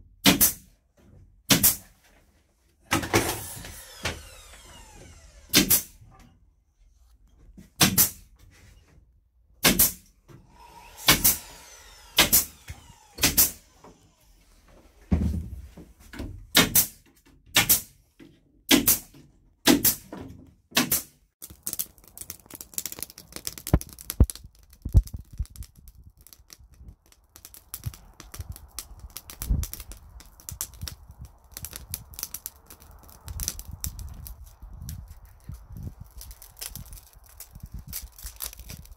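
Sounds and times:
nail gun firing: 0:00.2 - 0:00.7, 0:01.5 - 0:01.8, 0:02.9 - 0:06.0, 0:07.8 - 0:08.2, 0:09.6 - 0:10.0, 0:10.6 - 0:14.0, 0:16.5 - 0:18.0, 0:18.7 - 0:20.1, 0:20.7 - 0:21.2.

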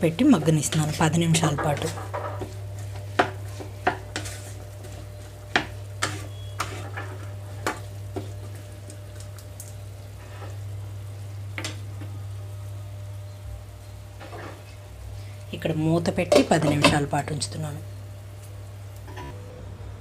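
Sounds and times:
food frying with light sizzle: 0:00.0 - 0:19.4
spatula scraping a pan: 0:00.2 - 0:08.6, 0:14.2 - 0:14.8.

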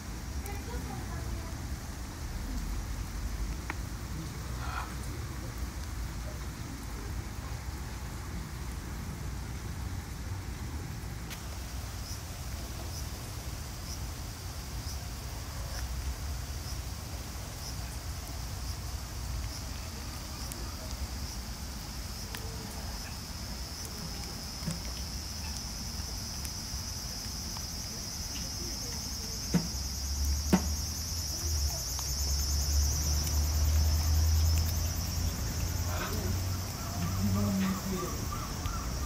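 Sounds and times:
high-pitched insect chorus: 0:11.5 - 0:39.0.

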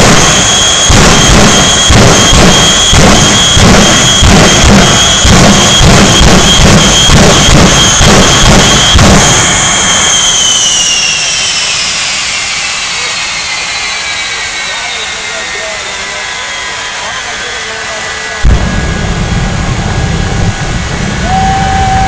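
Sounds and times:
jet engines roaring: 0:00.0 - 0:22.0.

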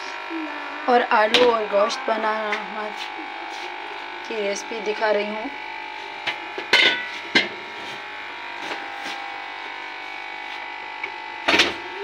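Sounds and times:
steady hum: 0:00.0 - 0:12.0.

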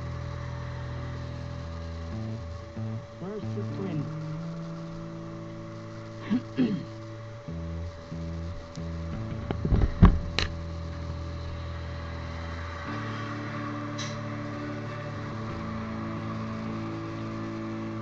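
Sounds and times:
background music sustained chords: 0:00.0 - 0:18.0
sharp knocks and clicks: 0:08.6 - 0:10.6.

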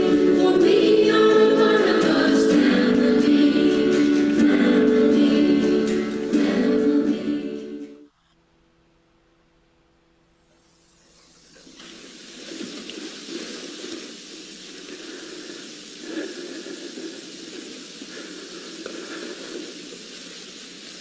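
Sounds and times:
video soundtrack hiss: 0:00.0 - 0:21.0
faint uneven sounds: 0:10.4 - 0:21.0.

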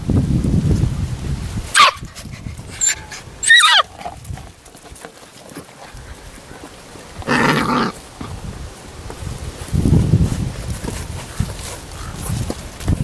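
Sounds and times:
puppies yipping and yelping: 0:01.8 - 0:03.9.

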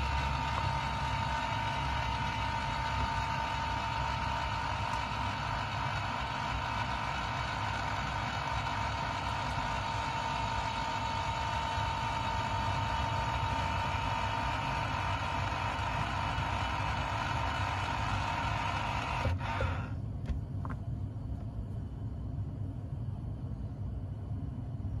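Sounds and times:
electric motor humming and whining: 0:00.0 - 0:20.0.

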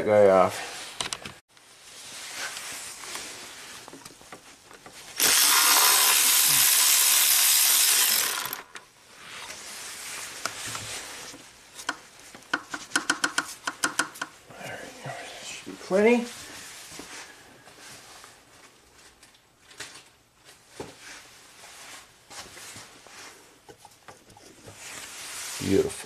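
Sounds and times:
power tool whirring: 0:05.2 - 0:08.8.

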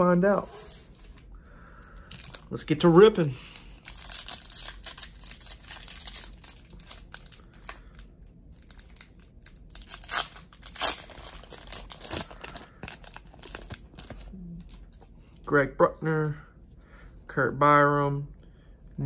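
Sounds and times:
wrapper ripping: 0:02.0 - 0:14.7
foil wrapper crinkling and tearing: 0:02.0 - 0:14.8.

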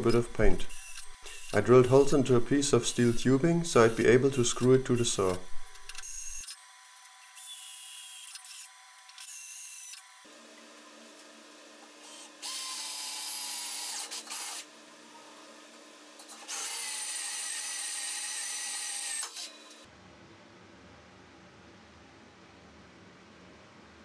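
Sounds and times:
cordless drill whining into steel: 0:00.6 - 0:02.1, 0:02.8 - 0:06.6, 0:16.4 - 0:19.8.

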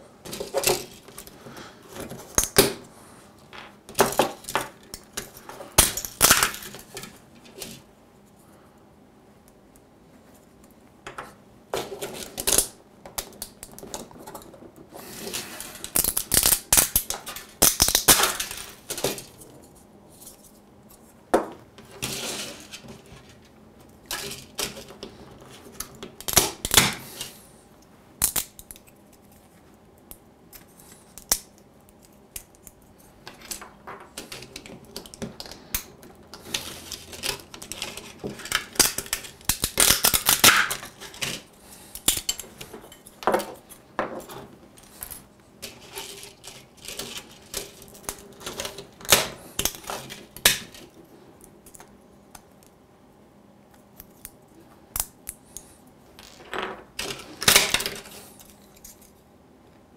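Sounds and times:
plastic parts snapping and crackling: 0:03.9 - 0:07.2, 0:11.8 - 0:14.6, 0:15.8 - 0:19.5, 0:25.7 - 0:27.0, 0:28.2 - 0:29.3, 0:30.5 - 0:44.2, 0:44.8 - 0:52.4, 0:54.0 - 0:59.1.

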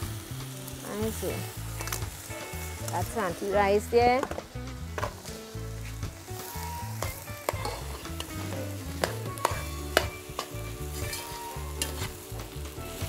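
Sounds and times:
rice sizzling in a pot: 0:00.0 - 0:13.0
metal ladle scraping pot: 0:06.4 - 0:12.3.

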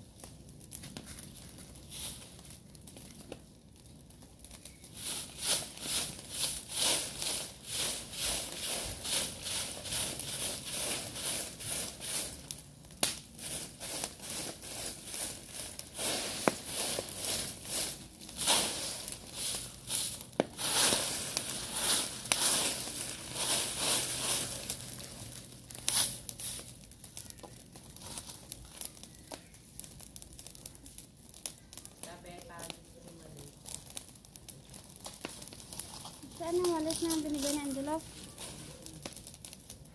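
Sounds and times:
broom scratching over dry leaves: 0:01.1 - 0:02.5, 0:04.9 - 0:12.5, 0:13.4 - 0:26.8, 0:35.0 - 0:39.4.

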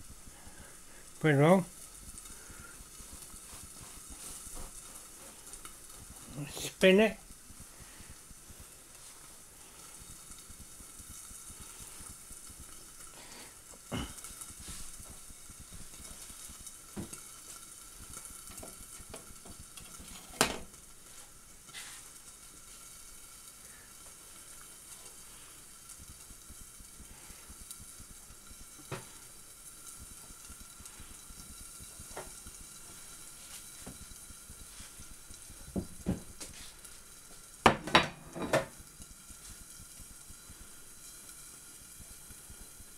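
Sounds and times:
egg sizzling in a frying pan: 0:00.0 - 0:42.9
plate clattering down: 0:37.7 - 0:38.7.

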